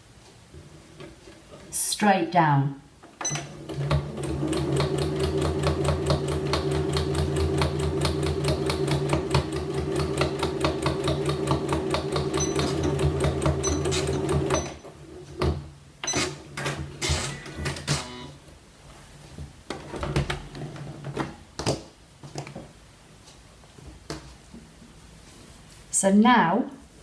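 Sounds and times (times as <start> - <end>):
sewing machine stitching: 3.2 - 14.8.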